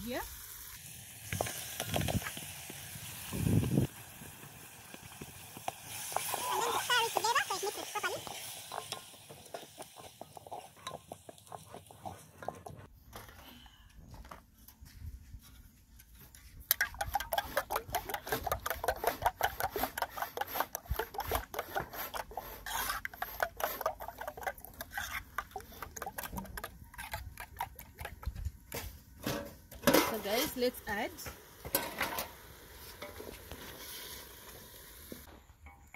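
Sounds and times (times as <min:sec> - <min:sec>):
wooden spoon stirring in a saucepan: 0:05.6 - 0:12.9, 0:16.8 - 0:28.5
spoon beating eggs in a metal bowl: 0:16.7 - 0:28.4.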